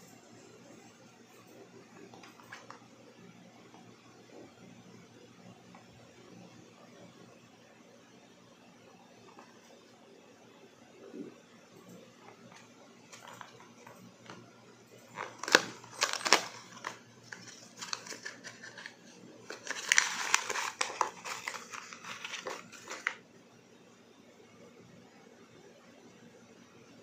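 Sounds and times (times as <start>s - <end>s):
plastic and paper crinkling: 12.3s - 14.4s, 15.0s - 23.2s.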